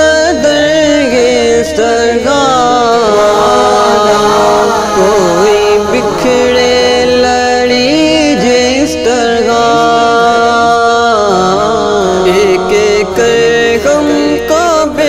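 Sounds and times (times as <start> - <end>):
ornamented devotional singing: 0.0 - 15.0
steady drone note: 2.8 - 10.6.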